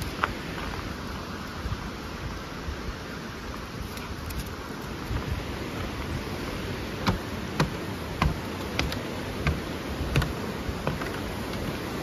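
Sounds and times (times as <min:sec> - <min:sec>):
waterfall rushing: 0:04.6 - 0:12.0
footsteps on wooden stairs: 0:07.0 - 0:11.7.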